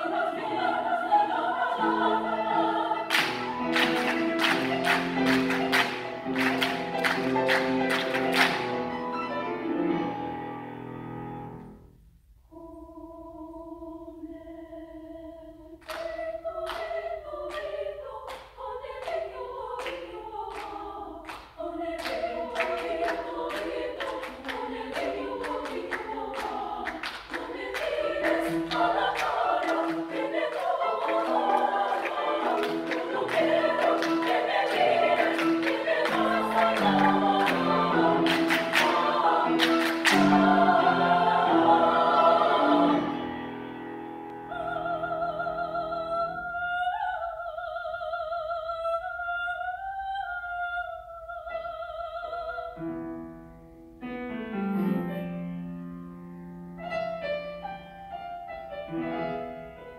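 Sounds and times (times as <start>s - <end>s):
women's choir singing: 0.0s - 8.9s, 12.5s - 43.8s, 44.4s - 52.8s
rhythmic hand clapping: 3.0s - 8.8s, 15.8s - 42.1s.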